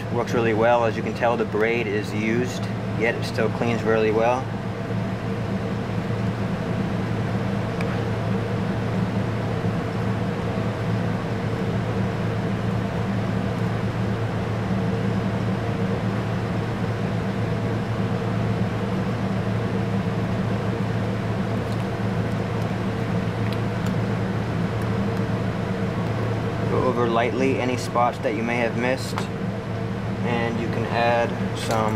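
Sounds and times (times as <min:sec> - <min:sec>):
low droning hum: 0:00.0 - 0:31.9.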